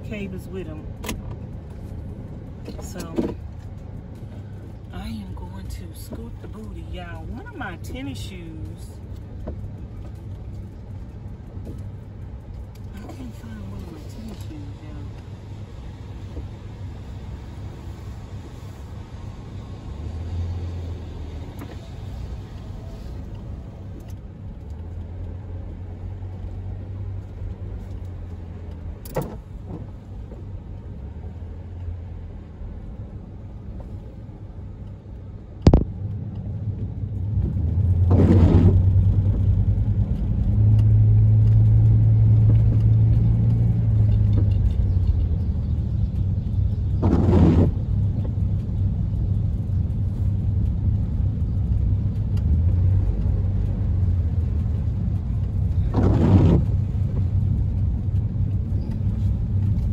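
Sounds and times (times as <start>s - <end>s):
van engine rumbling: 0.0s - 59.9s
windshield wiper sweeping: 13.0s - 19.9s, 35.7s - 45.2s, 46.8s - 59.9s.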